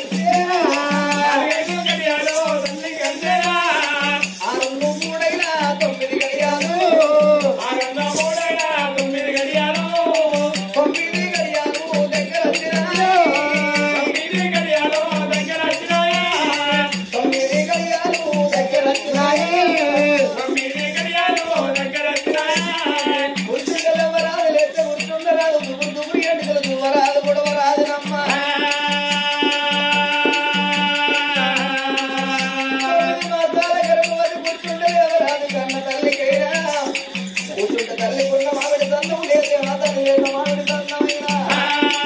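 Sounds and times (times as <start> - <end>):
jingling rattle percussion: 0.0 - 42.0
person singing wavering melody: 0.0 - 42.0.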